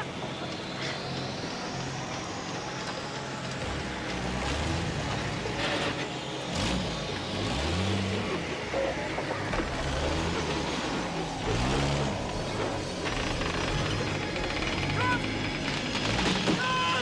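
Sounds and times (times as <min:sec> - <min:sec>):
truck engine labouring: 0:00.0 - 0:17.0
sharp knocks and creaks: 0:13.0 - 0:16.8.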